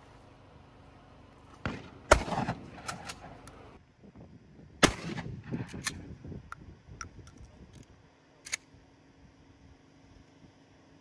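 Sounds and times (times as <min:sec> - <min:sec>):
gunshots: 0:01.6 - 0:03.4, 0:04.8 - 0:05.7.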